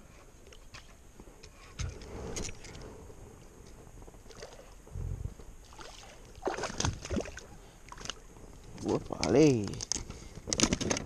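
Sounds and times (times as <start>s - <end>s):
fish thrashing and splashing: 5.6s - 8.2s
water slapping around a kayak: 5.6s - 11.0s.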